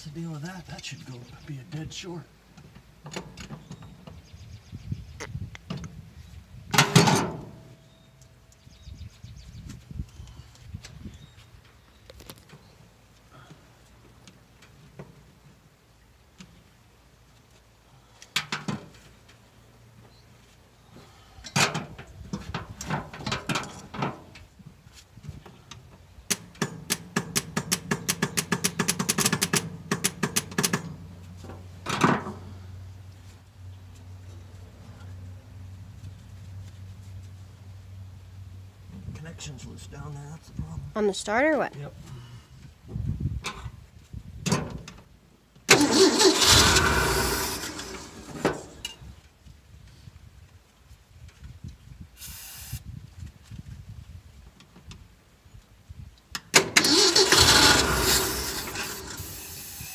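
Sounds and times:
starter cranking engine: 0:45.7 - 0:48.7, 0:56.6 - 0:59.9.

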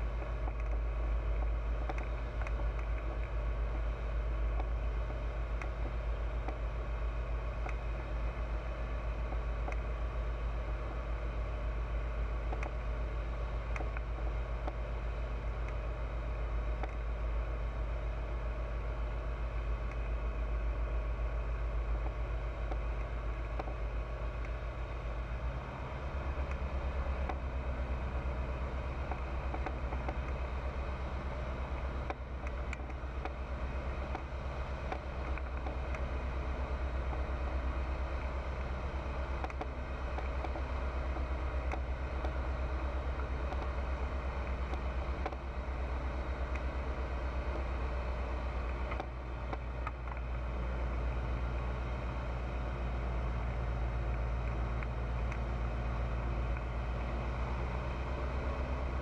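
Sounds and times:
light aircraft engine droning: 0:00.0 - 0:59.0.

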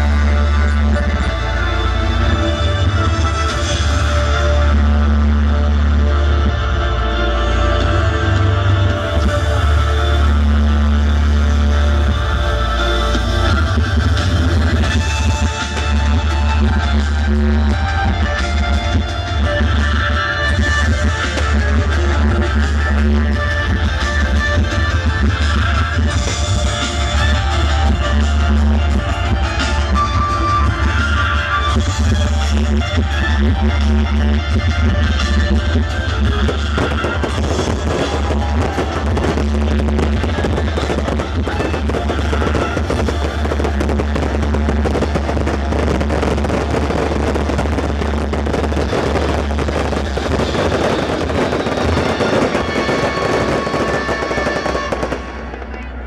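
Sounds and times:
fireworks crackling and banging: 0:00.0 - 0:06.6, 0:08.6 - 0:56.0
loud live music with heavy bass: 0:00.0 - 0:56.0.

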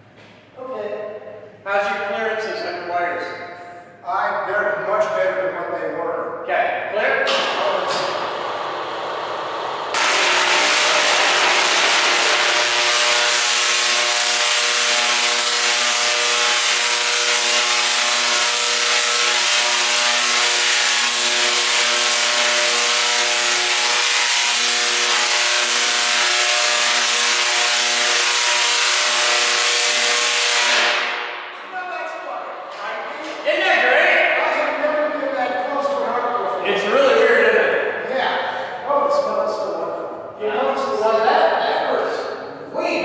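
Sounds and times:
tesla coil sparks buzzing: 0:07.3 - 0:31.4.

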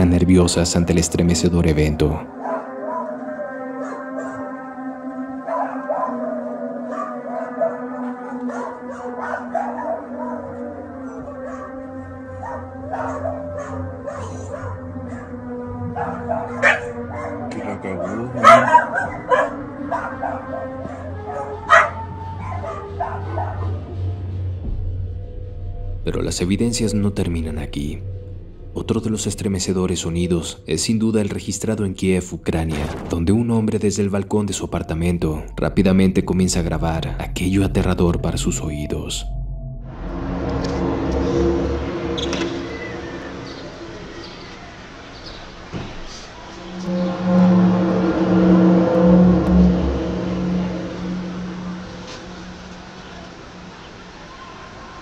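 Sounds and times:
low droning groan over city: 0:00.0 - 0:29.5, 0:39.2 - 0:55.0
dogs barking and yelping: 0:02.3 - 0:24.3
low hum: 0:19.3 - 0:30.7, 0:35.4 - 0:45.0, 0:46.4 - 0:54.9
droning sound in sky: 0:39.2 - 0:44.9, 0:46.5 - 0:54.6.

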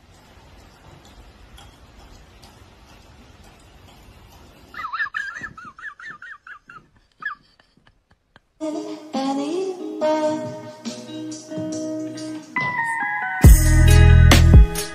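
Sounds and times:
high wavering trill: 0:12.4 - 0:14.9.

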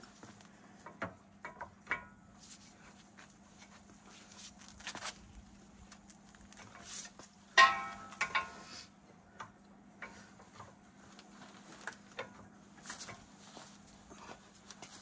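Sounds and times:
pry bar clanking on metal: 0:07.5 - 0:08.6.

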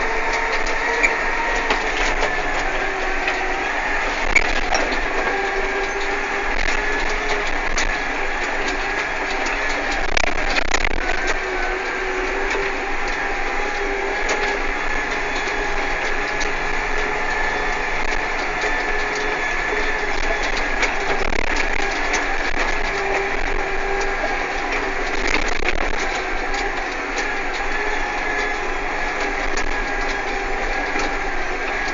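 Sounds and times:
tractor engine running: 0:00.0 - 0:31.9.

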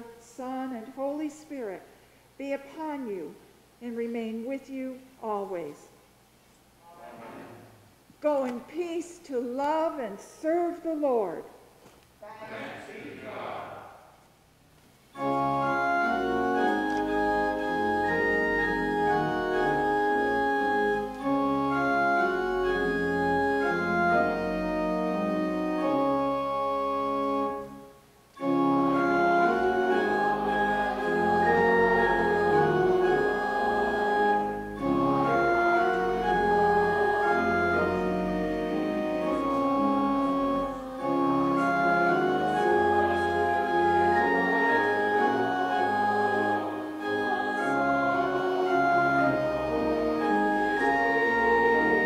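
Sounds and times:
church organ playing chords: 0:15.1 - 0:52.0.

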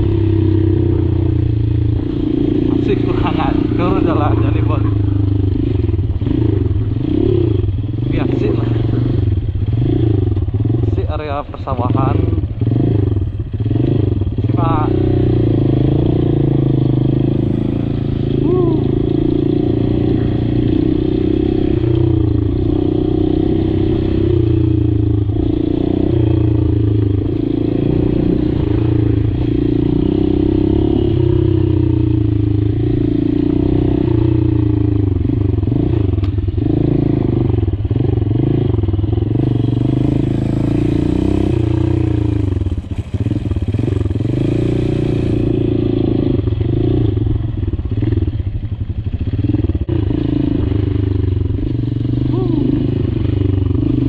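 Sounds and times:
motorcycle engine revving: 0:00.0 - 0:54.0.

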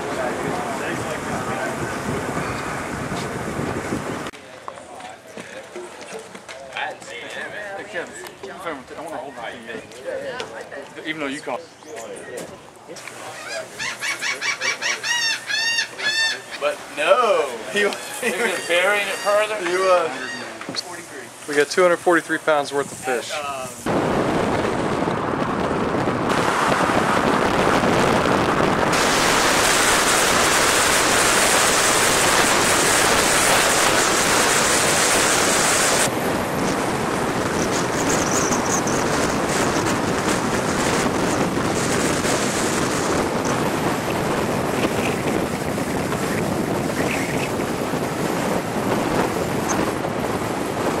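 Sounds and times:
wind rushing over microphone: 0:00.0 - 0:04.4, 0:21.8 - 0:51.0
tyre and road noise: 0:23.7 - 0:51.0.

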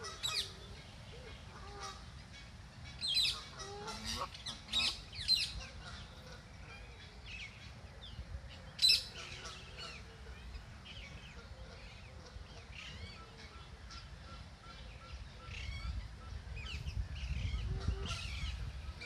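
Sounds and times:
goslings peeping: 0:00.0 - 0:02.4, 0:03.0 - 0:07.0.

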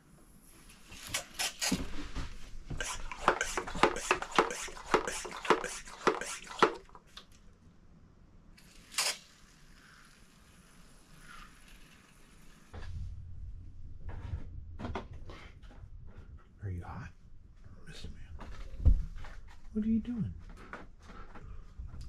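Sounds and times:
spray bottle spritzing: 0:01.0 - 0:01.8, 0:02.7 - 0:07.0, 0:08.7 - 0:09.3.

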